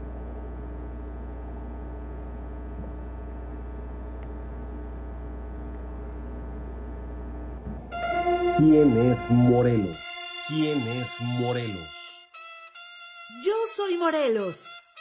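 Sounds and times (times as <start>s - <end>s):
electrical mains hum: 0.0s - 11.9s.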